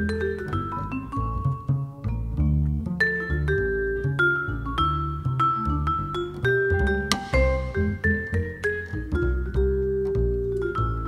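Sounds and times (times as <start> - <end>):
plucked double bass: 0.0 - 11.0
vibraphone notes: 5.9 - 10.0.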